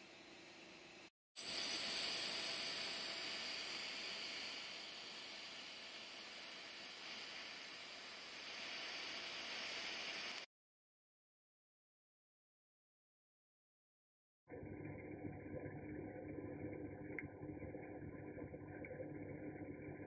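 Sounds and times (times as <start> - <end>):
welding arc hissing: 1.4 - 10.5.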